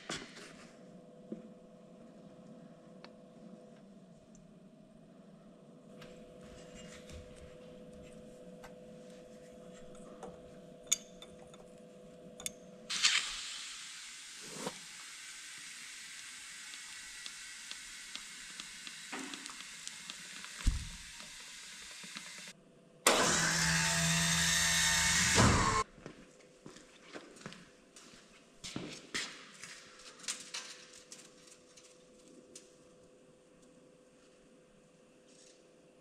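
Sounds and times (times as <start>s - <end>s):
compressed air hissing into tire: 12.9s - 22.5s
loud machine humming: 23.1s - 25.8s.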